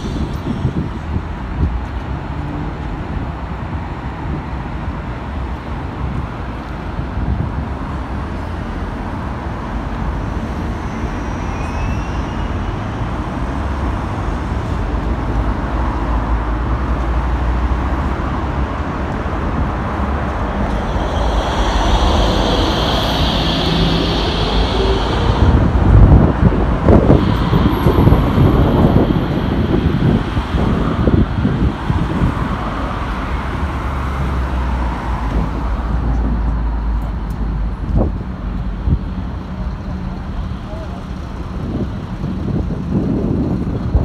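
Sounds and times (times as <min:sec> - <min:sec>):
tram rumbling past: 0:00.0 - 0:44.0
high whine: 0:19.4 - 0:31.1.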